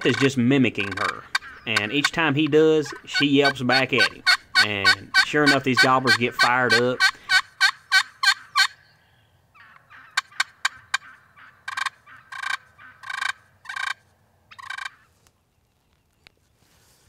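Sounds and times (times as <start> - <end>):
turkeys gobbling: 0.0 - 8.8, 9.6 - 15.1
turkey yelps: 0.9 - 2.2, 2.9 - 8.8, 9.6 - 15.1.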